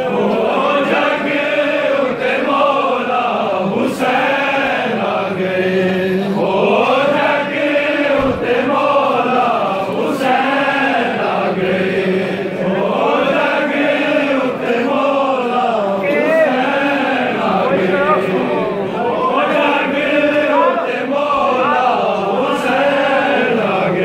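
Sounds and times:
crowd of men chanting: 0.0 - 24.0.

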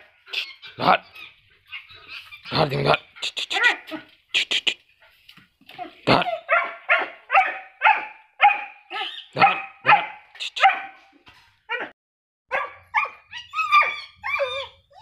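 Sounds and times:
puppy whining yelps: 0.3 - 2.5, 5.7 - 10.8, 12.5 - 15.0
puppy barking: 5.8 - 11.1, 12.5 - 14.7.

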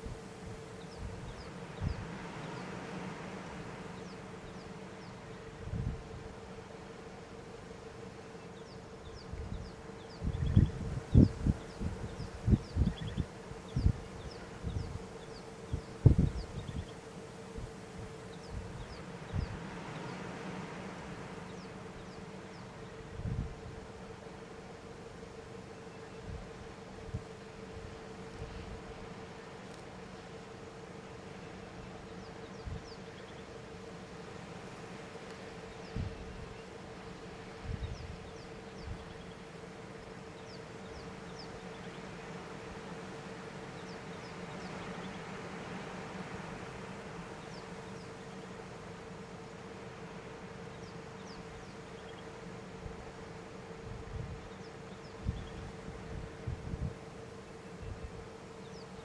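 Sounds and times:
insect-like buzz: 0.0 - 59.0.

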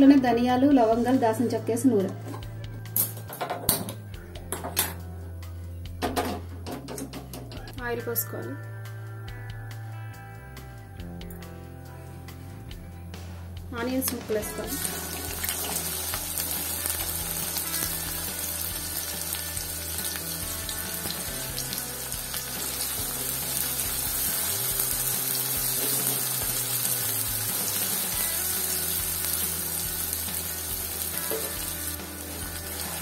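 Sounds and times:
onions sizzling in hot oil: 14.5 - 33.0.

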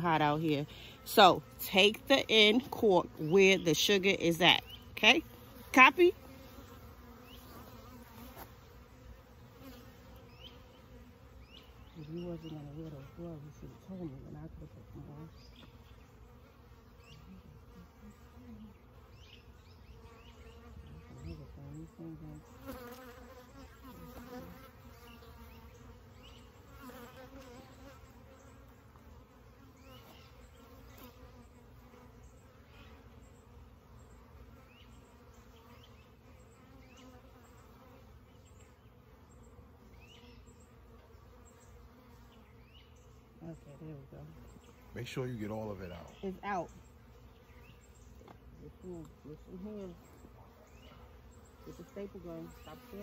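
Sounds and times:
bees buzzing: 0.0 - 53.0.

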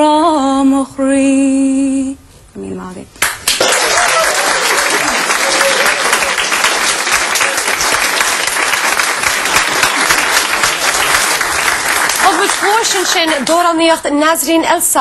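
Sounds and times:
audience applauding: 3.2 - 13.7
voices among clapping: 3.2 - 13.7.

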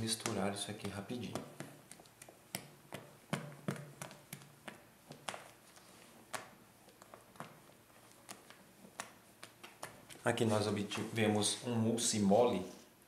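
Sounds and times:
utensil tapping bowl: 0.0 - 5.5.

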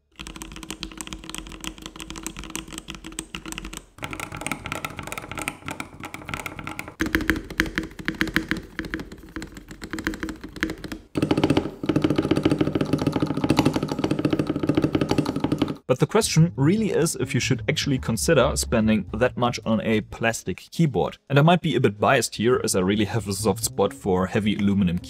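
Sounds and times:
mechanical keyboard typing: 0.1 - 15.9.

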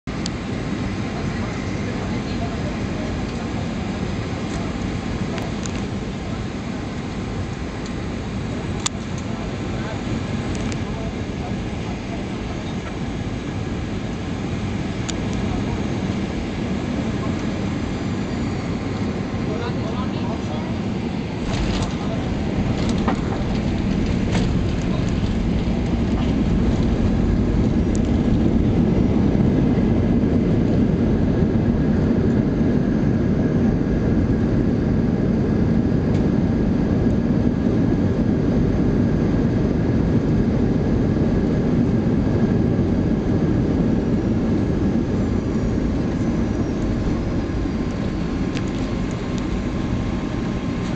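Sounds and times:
jet engine and wheels rumbling: 0.0 - 50.9.

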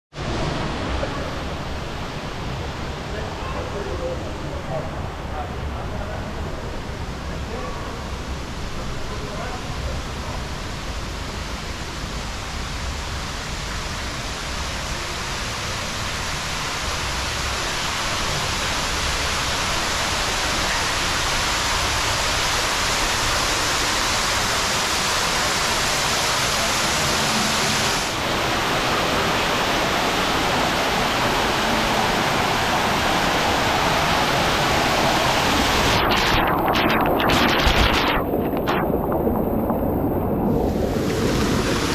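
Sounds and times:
water rushing from cascades: 9.6 - 41.9
water splashing into pool: 33.3 - 41.9.

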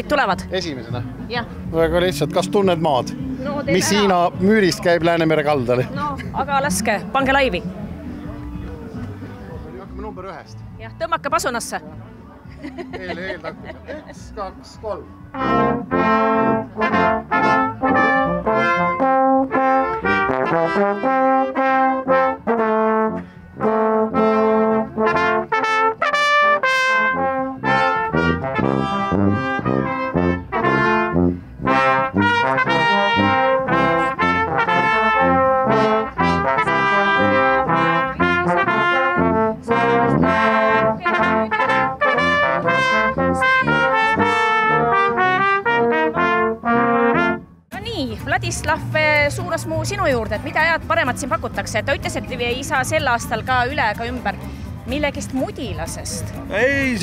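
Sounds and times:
brass band playing: 1.3 - 8.4, 15.0 - 47.8.

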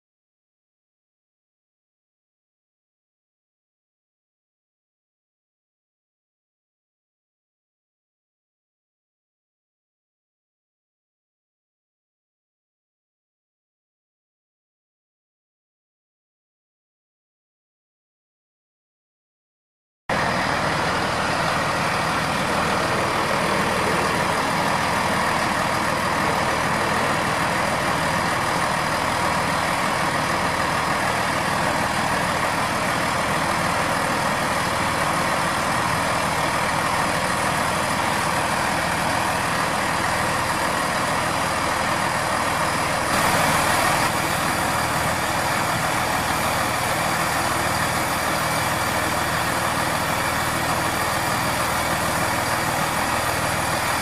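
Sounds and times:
train diesel engines idling: 20.1 - 54.0.

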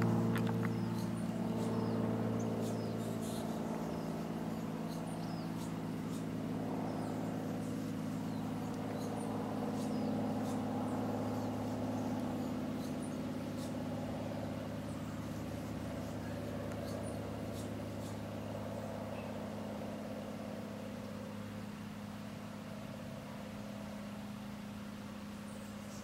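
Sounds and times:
low mechanical hum: 0.0 - 26.0.

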